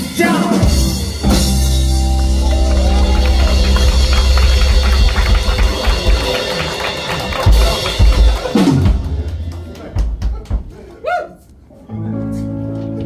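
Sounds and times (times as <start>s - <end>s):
live rock band: 0.0s - 10.3s
drum strokes: 0.7s - 10.7s
heavy accented drum hits: 0.9s - 10.7s.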